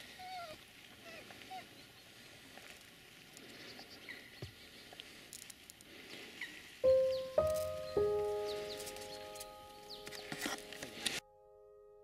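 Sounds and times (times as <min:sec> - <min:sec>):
distant waterbird calls: 0:03.4 - 0:05.2, 0:05.9 - 0:11.0
low background hiss: 0:06.6 - 0:11.7.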